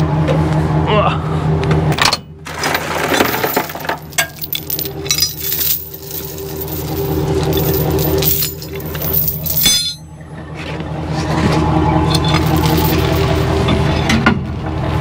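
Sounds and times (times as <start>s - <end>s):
steady low hum: 0.0s - 15.0s
chain clinking and rattling: 2.6s - 10.2s, 12.1s - 13.5s.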